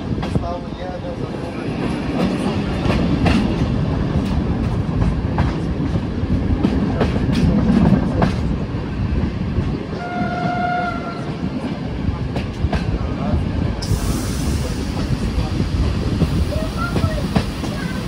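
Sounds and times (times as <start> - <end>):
train rumbling on track: 0.0 - 18.0
train horn blast: 10.0 - 11.4.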